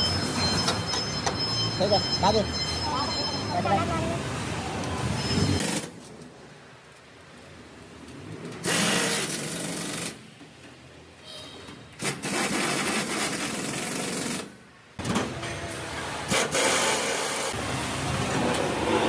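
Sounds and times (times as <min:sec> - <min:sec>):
pneumatic air tool driving bolts: 0:08.6 - 0:10.2, 0:12.0 - 0:14.6, 0:16.3 - 0:17.6.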